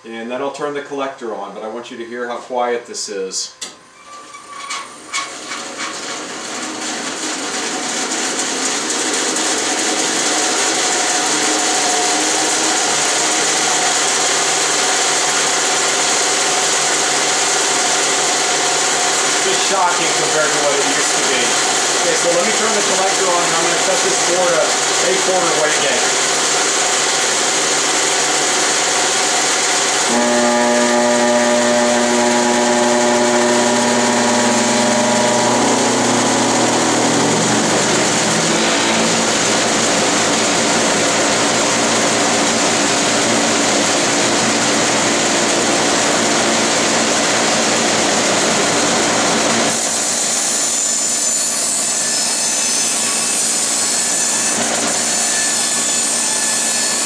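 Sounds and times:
bandsaw running: 4.9 - 57.0
dust collector hum: 5.7 - 50.1.

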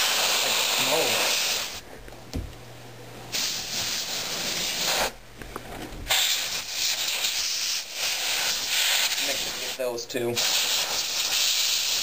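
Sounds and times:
compressed air spraying: 0.0 - 1.8, 3.3 - 5.2, 6.1 - 12.0.

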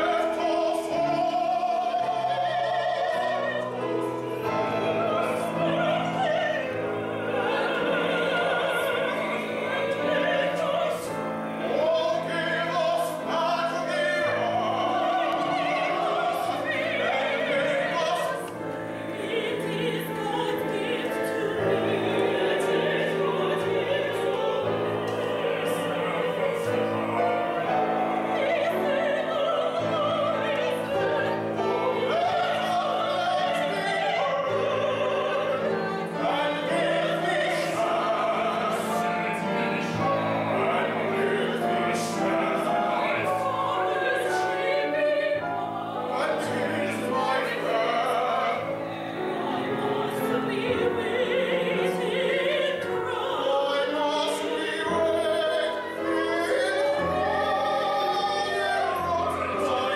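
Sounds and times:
operatic singing: 0.0 - 59.9
piano accompaniment: 0.0 - 59.9.

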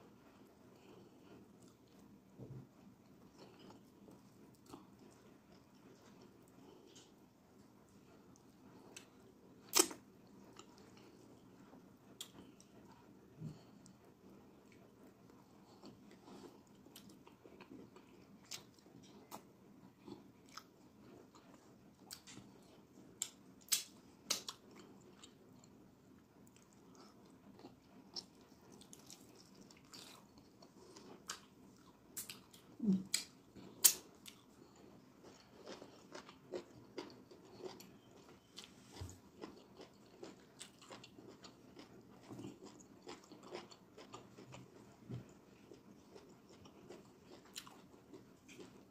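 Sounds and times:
wet chewing and lip smacking: 26.4 - 44.8.

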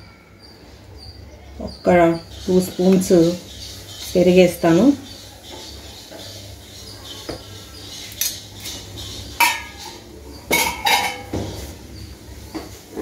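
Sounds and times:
metal spoon clinking against bowl: 9.4 - 11.3.

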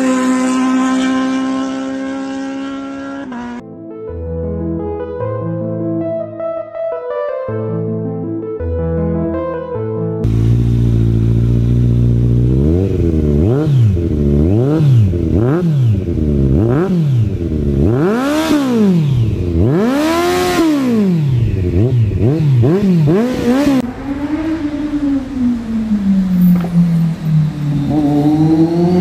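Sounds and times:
motorcycle engine idling and revving: 0.0 - 3.6, 10.2 - 29.0.

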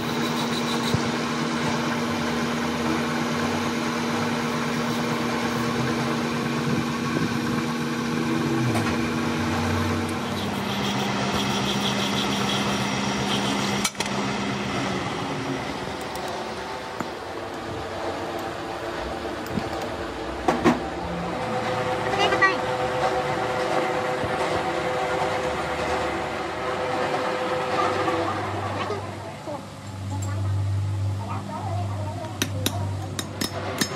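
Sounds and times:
metal lathe humming: 0.0 - 19.8.

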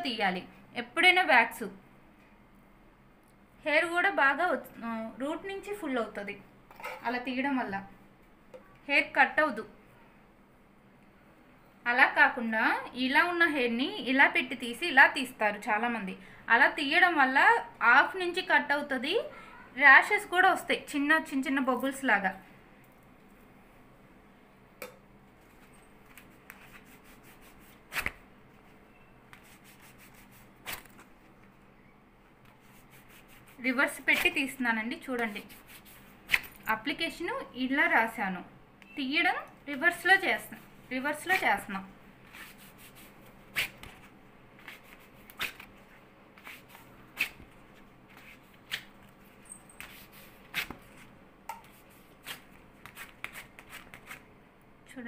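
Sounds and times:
hands rubbing waxing strip: 25.4 - 28.2, 29.3 - 31.0, 32.5 - 33.6, 35.3 - 36.5, 42.2 - 47.5, 48.1 - 49.2, 49.8 - 54.2
wax strip ripping off skin: 29.4 - 31.0, 42.4 - 44.0, 44.6 - 45.7, 46.4 - 47.5, 48.1 - 48.9, 52.2 - 54.2.

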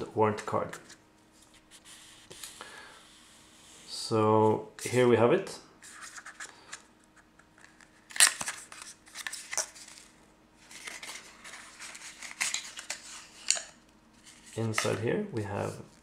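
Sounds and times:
card scraping and rustling: 7.6 - 15.8.

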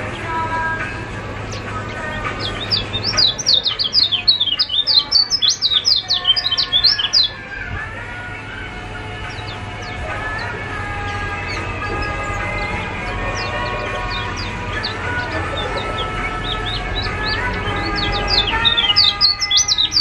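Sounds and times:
bird chirping: 1.4 - 7.4, 9.1 - 20.0.

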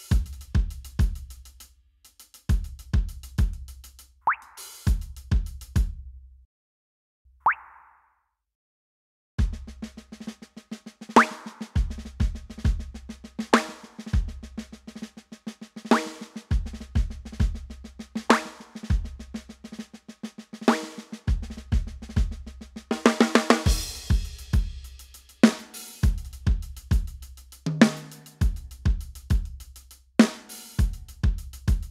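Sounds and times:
drum fill: 0.0 - 1.3, 11.2 - 13.0, 20.7 - 29.6, 30.2 - 31.9
rapid ticking hi-hat: 0.0 - 5.8, 23.6 - 31.9
kick drum: 4.9 - 6.0, 30.8 - 31.9
snare drum hits: 11.2 - 11.8, 13.6 - 14.1, 15.9 - 16.4, 18.3 - 18.9, 27.7 - 28.4, 30.2 - 30.5.

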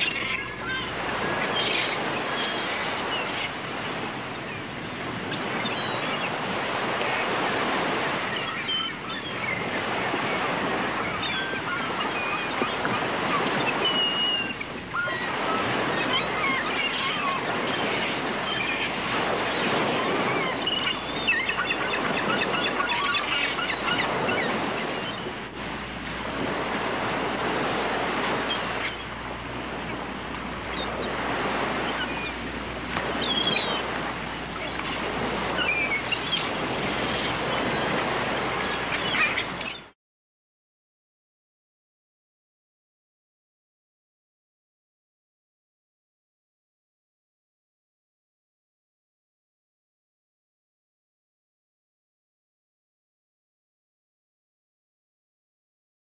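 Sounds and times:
seagulls calling: 0.0 - 39.9
surf washing in: 0.0 - 39.9.

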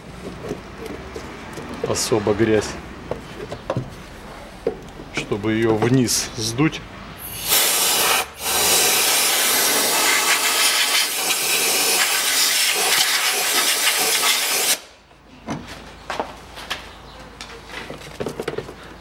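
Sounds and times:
compressed air blow gun hissing: 7.2 - 14.9.

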